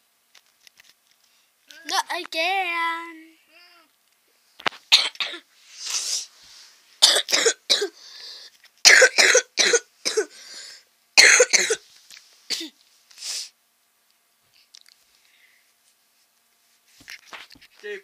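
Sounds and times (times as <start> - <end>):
person coughing: 4.9 - 5.4, 7.0 - 8.0, 8.9 - 10.4, 11.2 - 11.8, 12.5 - 12.8.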